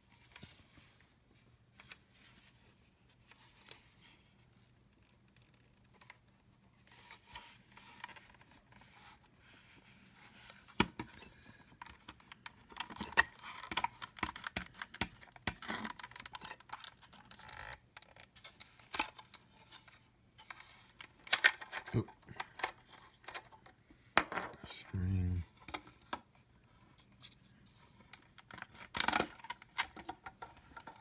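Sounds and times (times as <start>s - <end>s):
plastic parts clicking and scraping: 10.5s - 24.6s, 25.5s - 31.0s
plastic parts clattering: 10.9s - 19.4s, 20.4s - 24.6s, 28.1s - 31.0s.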